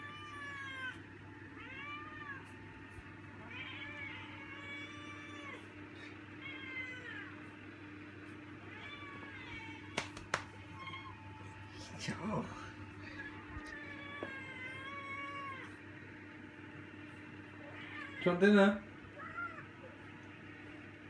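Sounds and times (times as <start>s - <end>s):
cat meowing: 0.0s - 1.0s, 1.6s - 2.6s, 3.4s - 5.7s, 6.4s - 7.5s, 8.6s - 11.3s, 13.1s - 15.8s, 17.6s - 18.4s, 19.2s - 20.0s.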